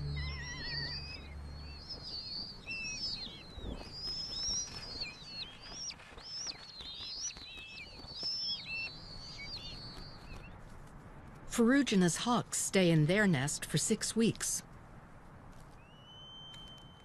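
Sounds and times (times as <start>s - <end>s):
hawks squealing calls: 0.0s - 4.8s.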